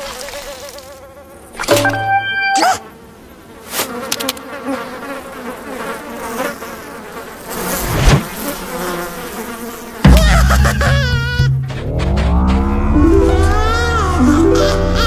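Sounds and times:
cartoon flies buzzing: 7.4s - 15.0s
cartoon lizard cry: 10.1s - 11.5s.

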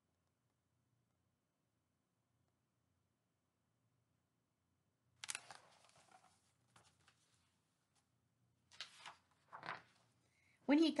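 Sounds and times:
book page rustling: 5.2s - 8.0s, 8.7s - 10.1s.

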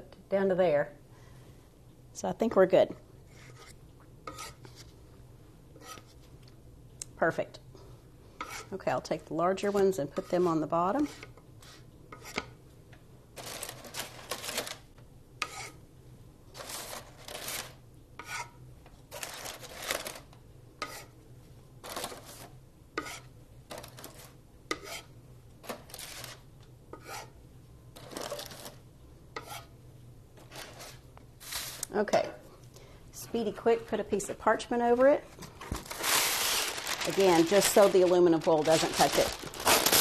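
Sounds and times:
wooden spatula scraping metal griddle: 3.3s - 5.0s, 5.8s - 6.2s, 8.4s - 8.8s, 15.4s - 15.8s, 18.2s - 18.6s, 23.0s - 23.3s, 24.0s - 25.1s, 27.0s - 27.4s, 29.4s - 29.7s
paper rustling: 13.4s - 14.8s, 16.6s - 17.8s, 19.1s - 20.2s, 28.0s - 28.8s, 35.4s - 40.0s.

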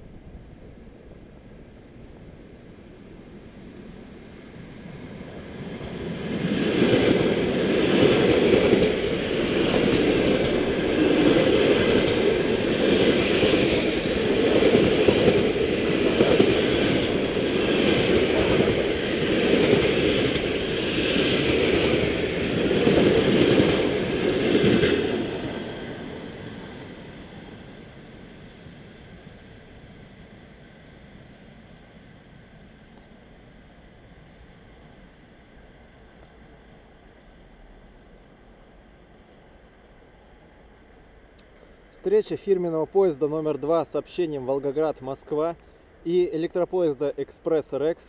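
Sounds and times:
train passing: 0.0s - 48.0s
wheels rumbling on rail: 0.0s - 48.0s.

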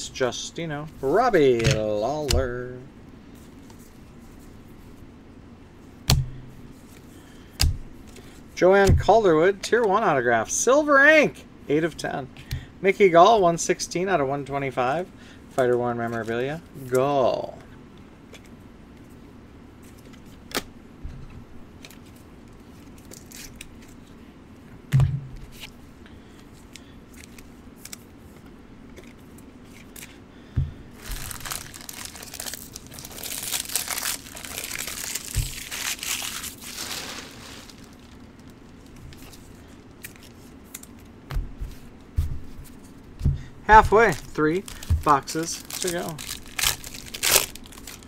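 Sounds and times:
plastic wrapping crinkling and tearing: 31.0s - 39.4s, 43.8s - 48.0s.

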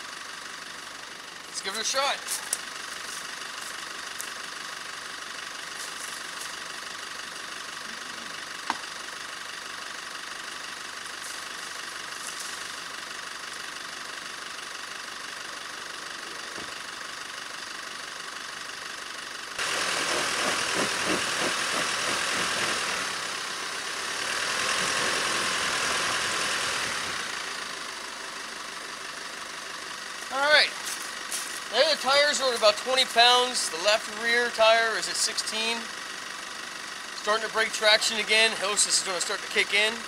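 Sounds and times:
pickup truck engine idling: 0.0s - 40.0s
tyres spinning on leaves and dirt: 1.6s - 7.2s, 10.4s - 13.9s, 19.6s - 23.5s.

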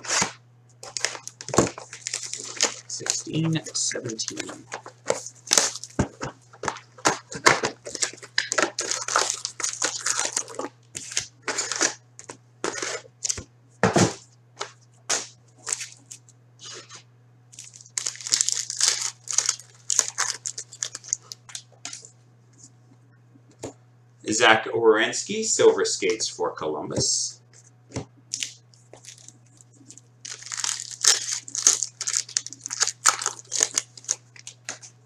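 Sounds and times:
foil wrappers crinkling and tearing: 0.0s - 13.4s, 14.6s - 22.1s, 28.3s - 35.0s
faint low hum: 0.0s - 35.0s.

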